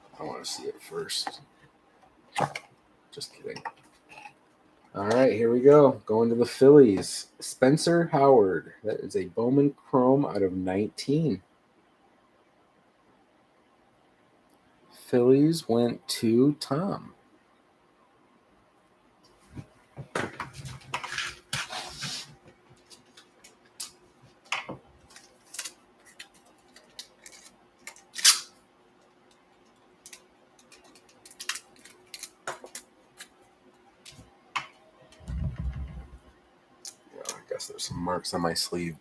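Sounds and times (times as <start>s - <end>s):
low thump: 35.2s - 36.2s.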